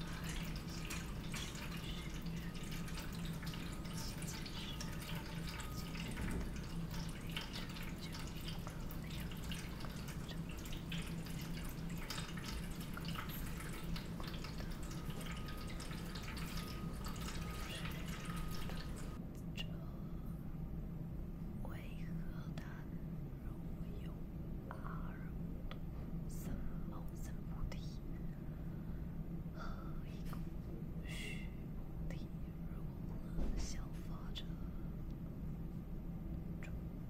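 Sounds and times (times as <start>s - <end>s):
water dripping and splashing: 0.0s - 19.2s
steady low hum: 0.0s - 37.0s.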